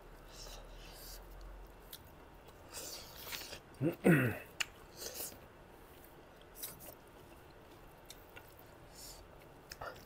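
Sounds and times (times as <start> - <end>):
people chewing food: 0.0 - 10.0.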